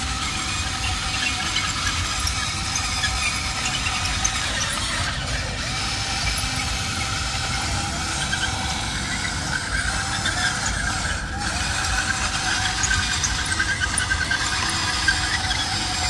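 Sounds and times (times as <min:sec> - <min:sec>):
motor whines: 0:00.0 - 0:16.0
toy excavator mechanical drone: 0:00.0 - 0:16.0.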